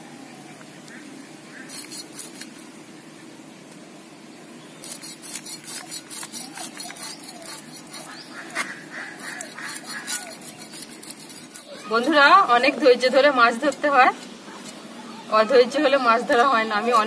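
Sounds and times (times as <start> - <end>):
fish scales rasping on blade: 1.6 - 2.7, 4.8 - 17.0.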